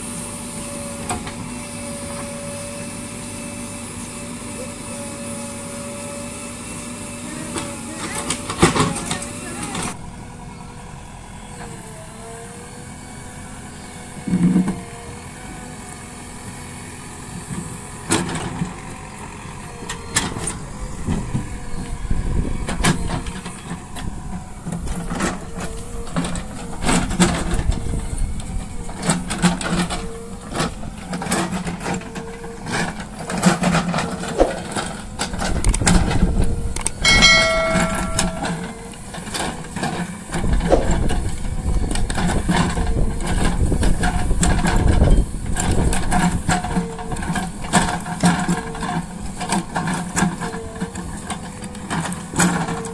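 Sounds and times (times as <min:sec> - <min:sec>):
diesel engine running under load: 0:00.0 - 0:52.9
bucket knocking and scraping soil: 0:33.5 - 0:35.0, 0:40.4 - 0:41.3
brief pitched tone: 0:37.0 - 0:38.9.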